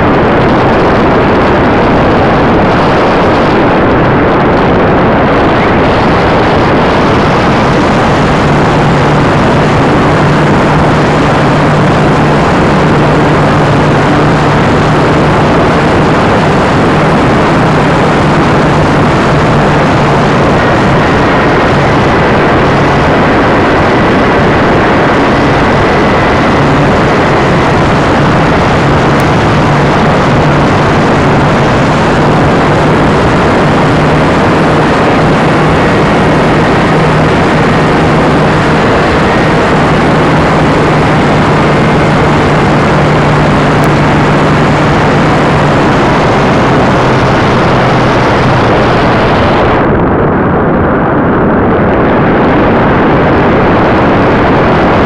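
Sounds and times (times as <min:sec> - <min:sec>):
wind rushing: 0:00.0 - 0:55.0
electric motor humming: 0:06.2 - 0:49.2.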